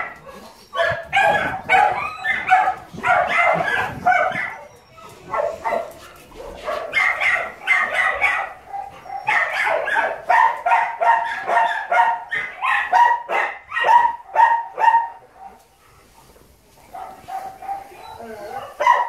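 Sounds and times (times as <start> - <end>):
dog yipping and whining: 0.0 - 6.1, 7.0 - 10.2, 17.6 - 19.0.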